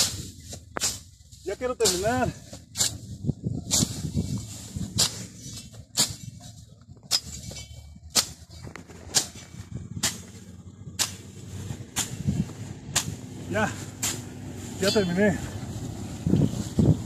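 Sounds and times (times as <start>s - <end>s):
machete slashing through dry grass: 1.8s - 3.0s, 3.6s - 6.4s, 7.1s - 14.9s.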